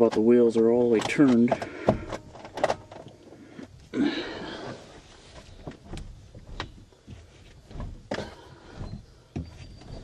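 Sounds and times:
steering wheel clunks and creaks: 0:00.0 - 0:10.0.

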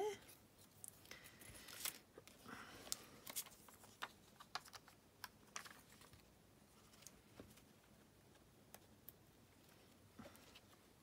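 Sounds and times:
paper rustling and clicking: 0:00.7 - 0:07.7.

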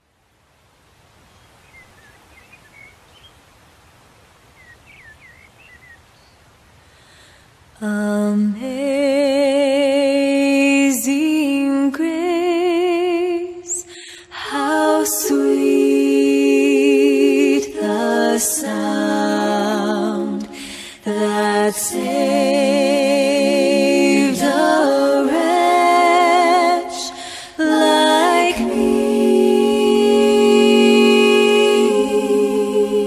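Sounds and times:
background hiss: 0:00.0 - 0:33.0
person singing with vibrato: 0:07.8 - 0:33.0.

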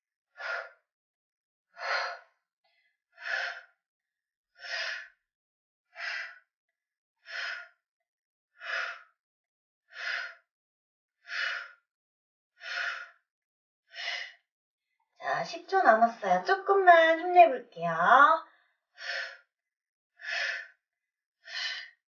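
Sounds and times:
woman breathing hard: 0:00.4 - 0:00.8, 0:01.8 - 0:02.3, 0:03.2 - 0:03.8, 0:04.6 - 0:05.2, 0:05.9 - 0:06.5, 0:07.2 - 0:07.8, 0:08.6 - 0:09.2, 0:09.9 - 0:10.5, 0:11.2 - 0:11.9, 0:12.6 - 0:13.2, 0:13.9 - 0:14.4, 0:18.4 - 0:19.5, 0:20.2 - 0:20.8, 0:21.4 - 0:22.0.

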